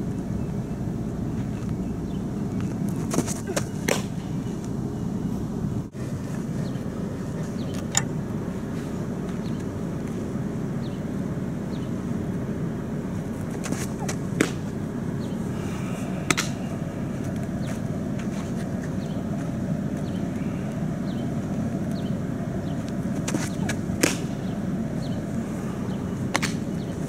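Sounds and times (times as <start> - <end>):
low outdoor rumble: 0.0 - 27.0
ball smacking into mitt: 13.6 - 14.7, 26.3 - 26.6.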